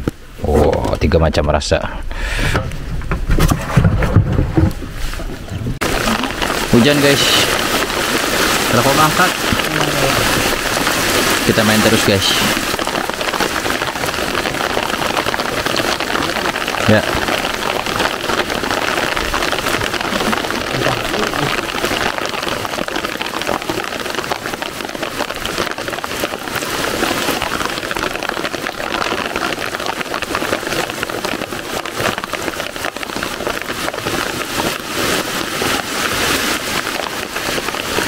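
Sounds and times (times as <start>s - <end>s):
heavy rain on water: 4.1s - 38.0s.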